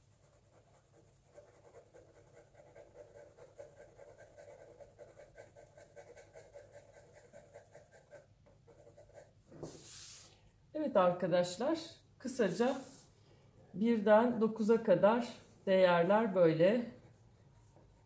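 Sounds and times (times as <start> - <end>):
pencil scratching on paper: 0.0 - 10.3.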